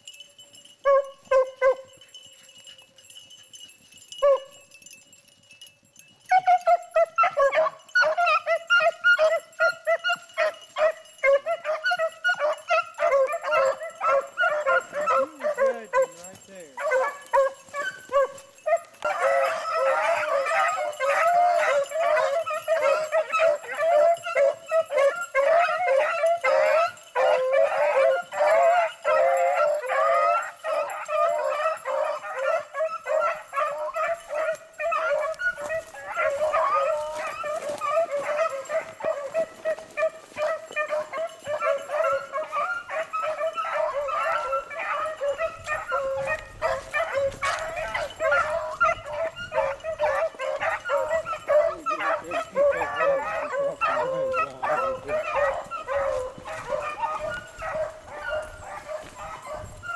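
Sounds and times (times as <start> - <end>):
hounds baying: 0.0 - 59.9.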